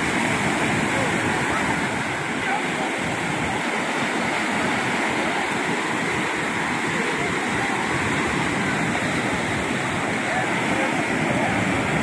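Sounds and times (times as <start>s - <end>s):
waves breaking on beach: 0.0s - 12.0s.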